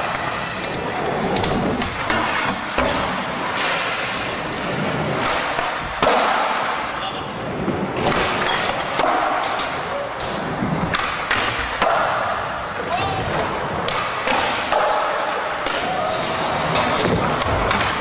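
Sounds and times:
skateboard wheels rolling on concrete: 0.0s - 18.0s
skateboard clacks and landing thuds: 5.1s - 6.8s, 7.9s - 12.3s.

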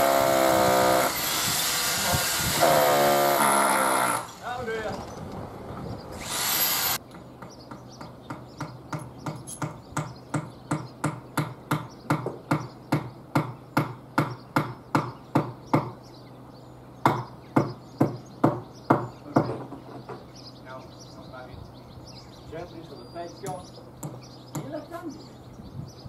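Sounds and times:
hammering on timber: 7.2s - 16.0s, 17.0s - 20.3s, 23.5s - 24.8s.

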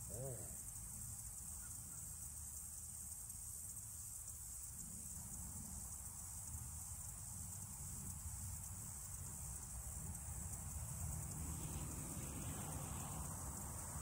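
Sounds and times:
high-pitched insect drone: 0.0s - 14.0s.

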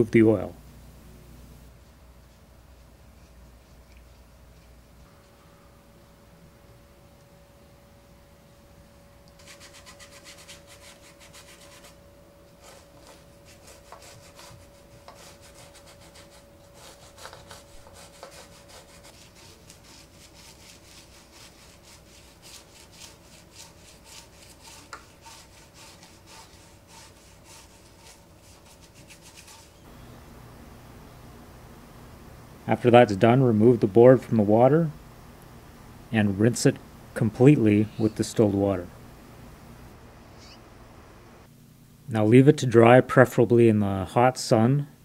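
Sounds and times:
steady low hum: 0.0s - 45.0s
toothbrush scrubbing in soapy water: 9.4s - 29.9s.

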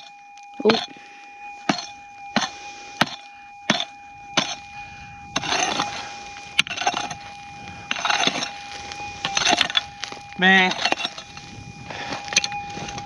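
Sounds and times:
pick striking hard ground: 1.6s - 4.7s, 5.3s - 13.0s
loosened dirt scraping: 5.3s - 13.0s.

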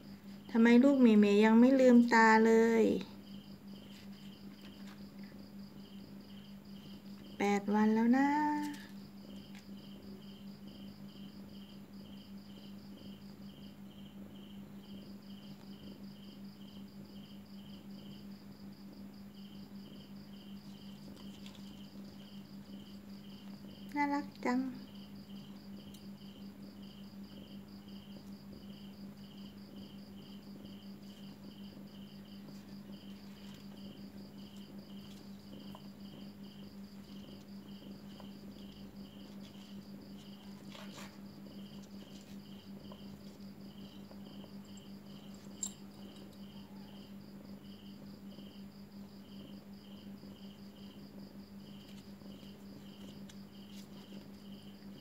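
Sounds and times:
faint cricket chirping: 0.0s - 55.0s.

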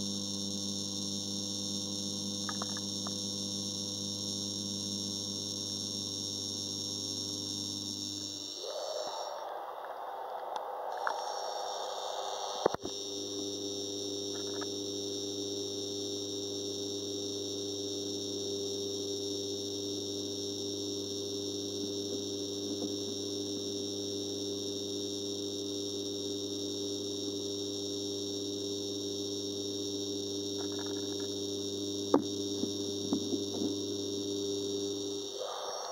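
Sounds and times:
aquarium equipment humming: 0.0s - 35.9s.

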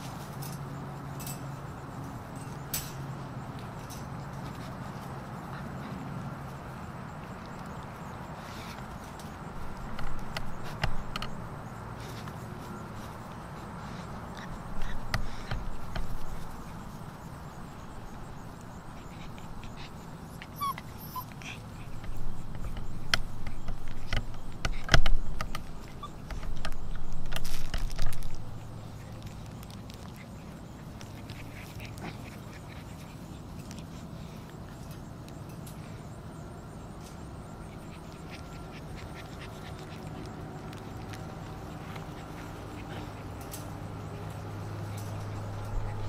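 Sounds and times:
puppies scuffling: 0.0s - 36.0s, 37.0s - 46.0s
puppies yipping: 17.7s - 24.5s, 25.4s - 27.1s, 37.5s - 46.0s.

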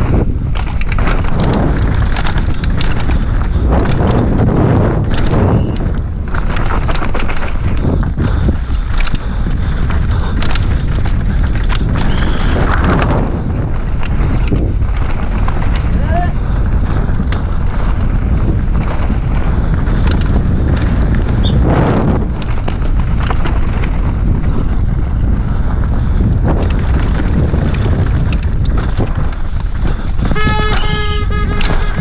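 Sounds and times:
mountain bike rattling: 0.0s - 32.0s
tyres on dirt trail: 0.0s - 32.0s
wind on microphone: 0.0s - 32.0s
steady pitched buzz: 30.3s - 32.0s.

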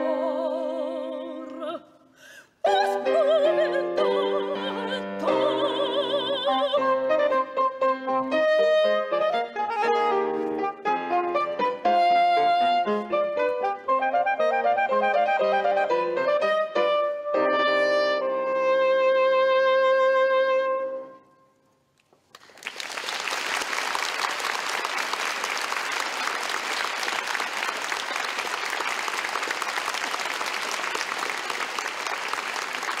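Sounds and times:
piano: 0.0s - 1.8s, 2.6s - 21.4s
audience applause: 22.3s - 33.0s.

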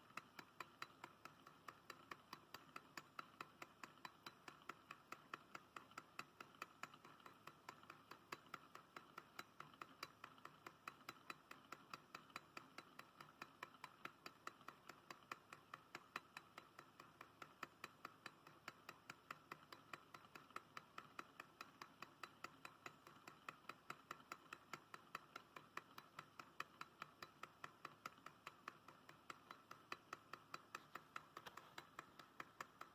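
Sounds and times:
stirling engine ticking: 0.0s - 32.9s.

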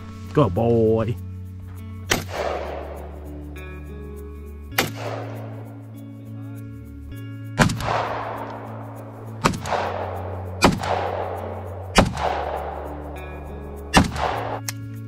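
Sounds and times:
background music: 0.0s - 15.0s
echoing gunshots: 2.1s - 3.9s, 4.8s - 5.8s, 7.6s - 14.7s.

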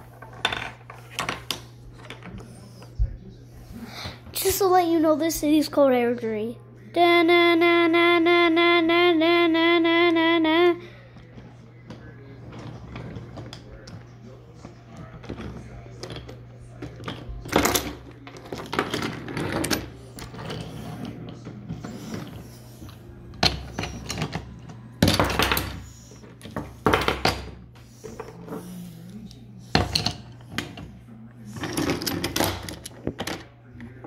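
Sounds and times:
wooden toy trains clattering: 11.4s - 28.8s, 31.5s - 33.5s.

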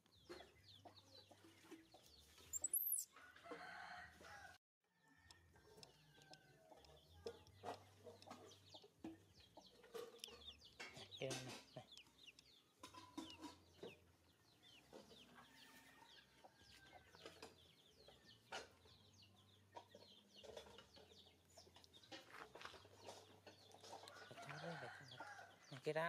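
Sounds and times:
chickens clucking: 0.1s - 4.0s, 5.2s - 25.8s
high falling chirps: 2.5s - 3.1s.

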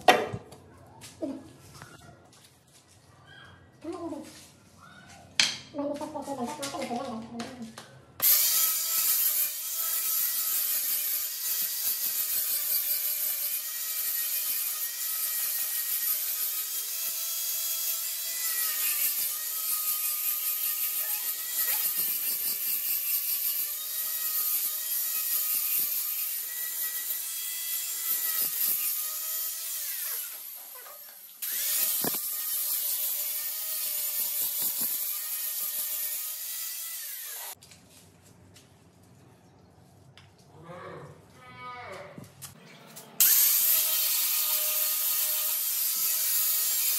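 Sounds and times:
angle grinder grinding stone: 8.2s - 37.6s, 43.2s - 46.9s.

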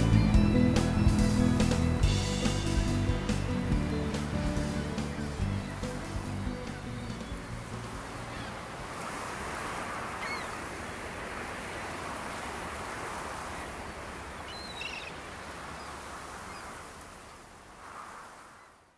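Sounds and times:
waves washing on shore: 0.0s - 18.9s
faint bird calls: 3.9s - 9.0s, 10.0s - 10.9s, 13.5s - 17.5s.

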